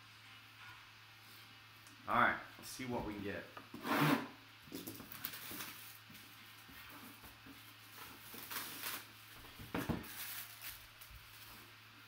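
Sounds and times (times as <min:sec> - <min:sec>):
faint steady hum: 0:00.0 - 0:12.0
paper and cardboard rustling: 0:04.8 - 0:11.8.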